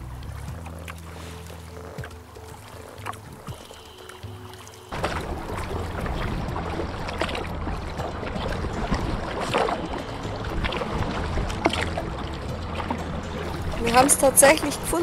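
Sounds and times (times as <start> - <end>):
kayak paddles splashing in water: 0.0 - 15.0
water dripping: 0.0 - 15.0
steady low rumble: 4.9 - 15.0.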